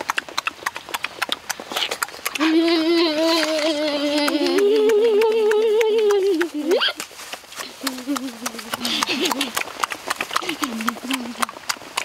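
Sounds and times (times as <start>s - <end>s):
smacking clicks of eating: 0.0s - 12.0s
people humming with closed mouths: 1.5s - 11.8s.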